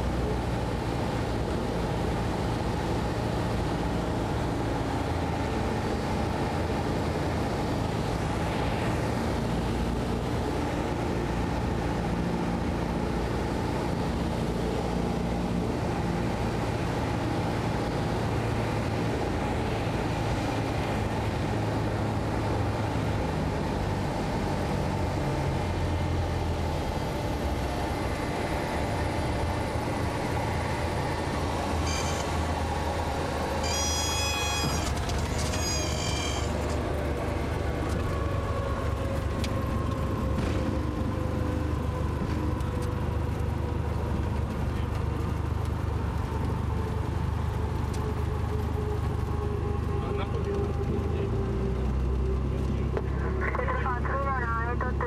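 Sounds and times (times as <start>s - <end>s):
light aircraft piston engine: 0.0s - 55.0s
short high-pitched squealing tones: 31.7s - 32.5s, 33.5s - 36.8s.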